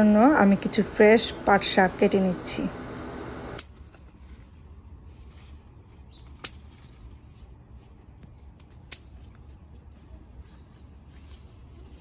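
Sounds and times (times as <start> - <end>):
scissors snipping plant stems: 6.2 - 7.2, 8.4 - 9.5.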